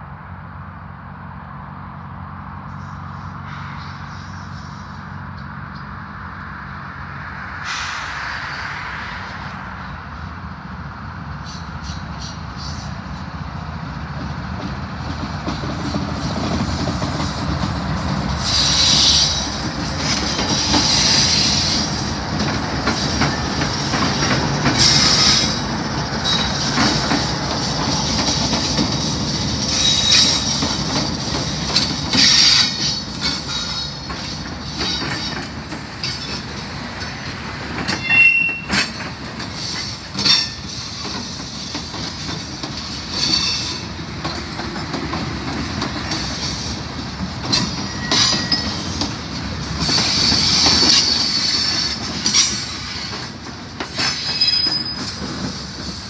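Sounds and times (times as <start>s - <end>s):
train rumbling past: 0.0s - 56.0s
train wheels squealing: 2.7s - 5.2s, 11.4s - 13.3s, 15.5s - 44.9s, 46.1s - 56.0s
wheels clicking over rail joints: 14.2s - 56.0s.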